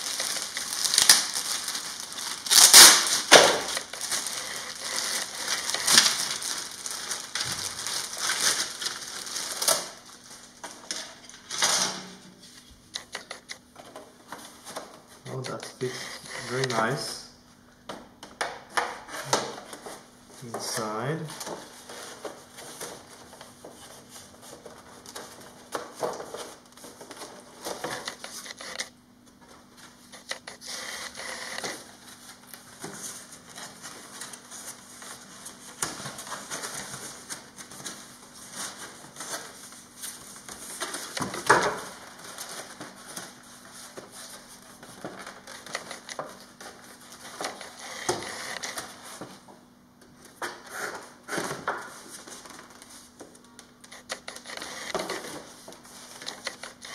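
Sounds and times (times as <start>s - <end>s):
foam parts rubbing and rustling: 0.0s - 11.2s, 29.5s - 49.5s.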